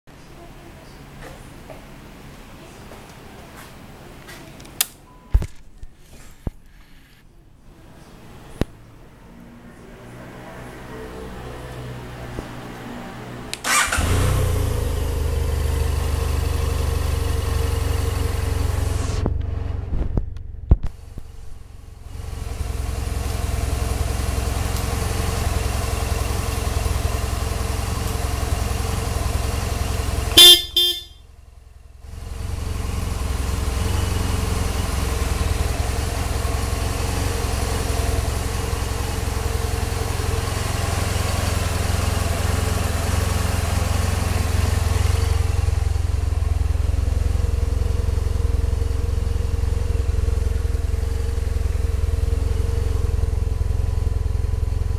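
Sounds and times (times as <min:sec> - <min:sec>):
motorcycle engine idling: 0:13.6 - 0:54.9
motorcycle horn: 0:30.1 - 0:31.3.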